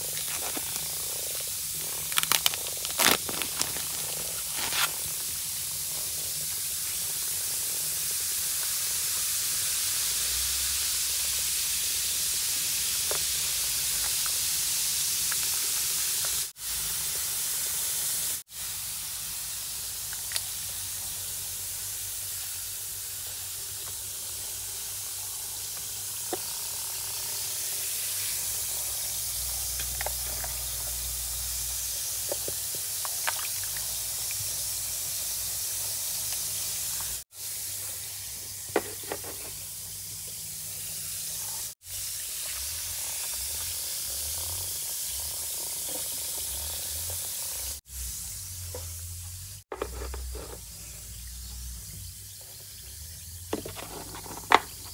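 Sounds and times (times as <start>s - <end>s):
bath bomb fizzing: 0.0s - 10.6s, 23.2s - 35.5s.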